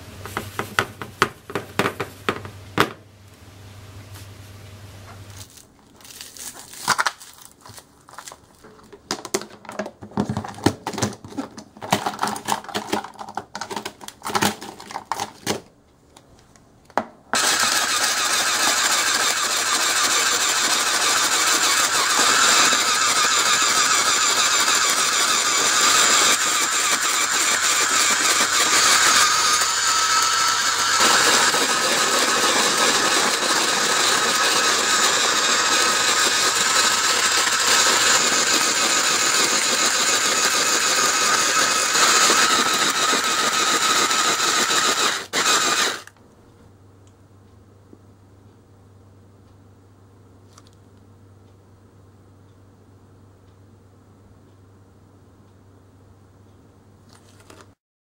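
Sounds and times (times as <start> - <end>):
plastic ice tray twisting: 10.2 - 15.6
shaved ice machine running: 17.4 - 46.1.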